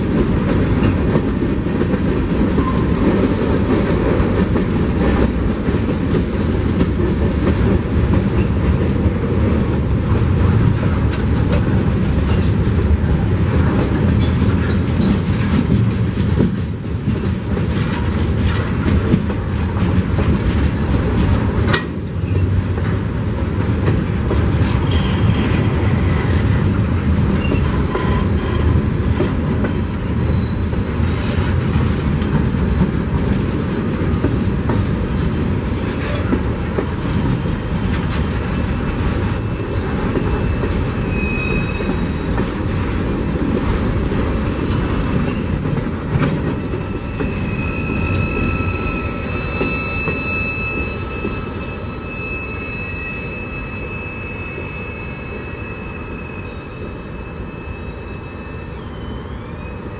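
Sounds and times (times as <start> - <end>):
freight train wheel rumble: 0.0 - 59.9
high wheel squeals: 29.6 - 31.4, 32.4 - 43.5, 44.5 - 59.9.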